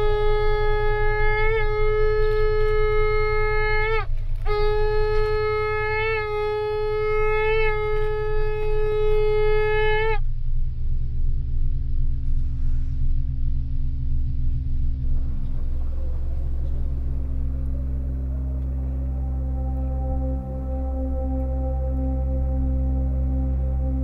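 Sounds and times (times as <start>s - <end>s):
shofar blasts: 0.0s - 10.2s, 16.0s - 24.0s.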